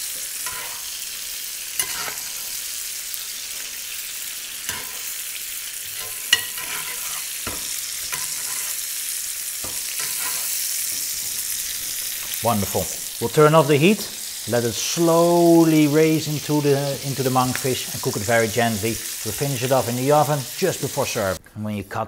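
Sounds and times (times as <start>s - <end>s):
butter sizzling in a pan: 0.0s - 21.4s
spoon clinking against pan: 6.0s - 8.4s.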